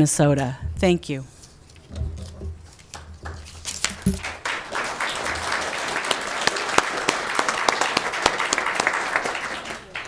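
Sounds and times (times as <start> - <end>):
small group clapping: 2.9 - 10.0.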